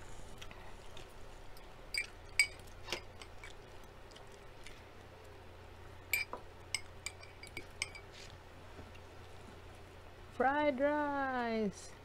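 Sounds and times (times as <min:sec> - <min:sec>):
fork clinking against glass bowl: 0:06.1 - 0:08.1.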